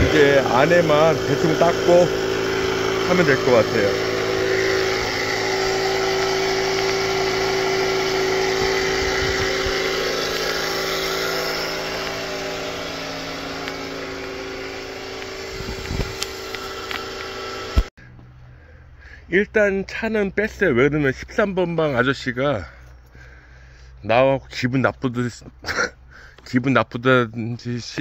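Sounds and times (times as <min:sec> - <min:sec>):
motor humming: 0:00.0 - 0:19.1.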